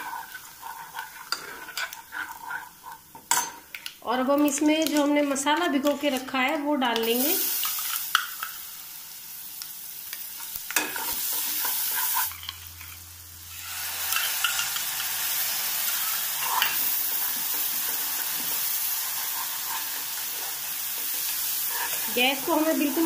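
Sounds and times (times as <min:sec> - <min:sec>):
paste sizzling in hot oil: 0:00.0 - 0:03.3, 0:07.0 - 0:23.0
metal spoon scraping a pan: 0:00.0 - 0:03.7, 0:10.4 - 0:13.0, 0:13.7 - 0:23.0.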